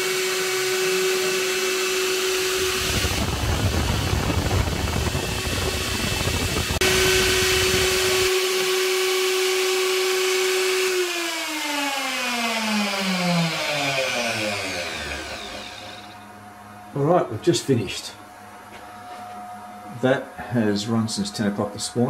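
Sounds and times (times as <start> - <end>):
router spindle motor whine: 0.0 - 16.3.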